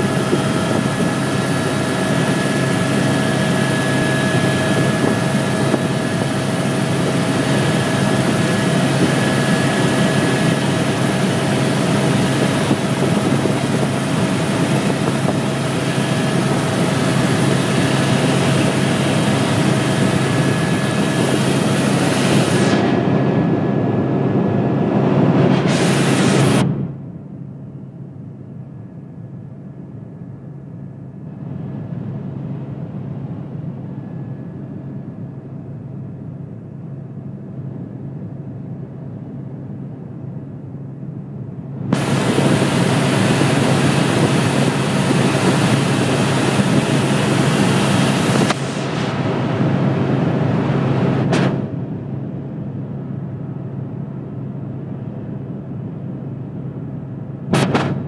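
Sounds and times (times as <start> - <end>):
helicopter cabin drone: 0.0 - 58.0
loud rushing noise: 18.3 - 27.0, 41.9 - 51.8.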